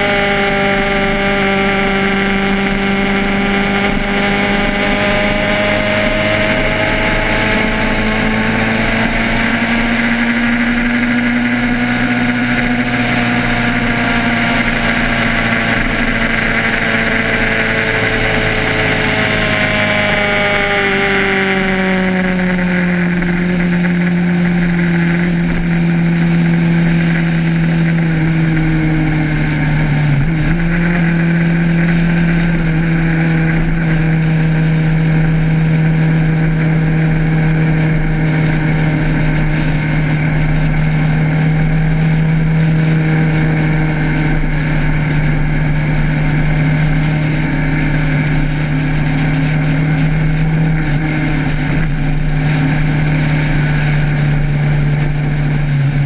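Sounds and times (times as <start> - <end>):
motorcycle engine running: 0.0 - 56.0
wind and road noise: 0.0 - 56.0.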